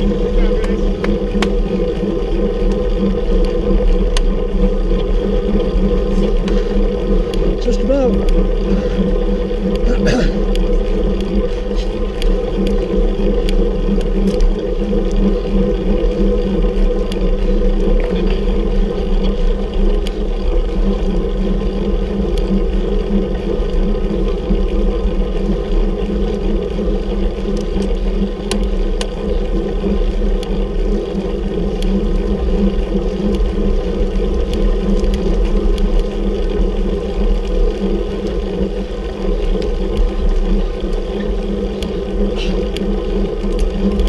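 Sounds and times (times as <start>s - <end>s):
bicycle mechanical whir and rumble: 0.0s - 44.0s
faint clicks: 2.6s - 5.2s, 9.7s - 15.2s, 39.4s - 44.0s.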